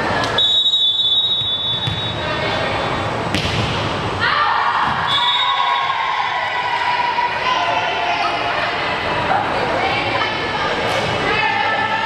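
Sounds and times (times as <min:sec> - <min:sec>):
referee's whistle blast: 0:00.4 - 0:02.2, 0:05.0 - 0:05.9
ball thump: 0:03.3 - 0:03.9
voices and shouts: 0:04.2 - 0:12.0.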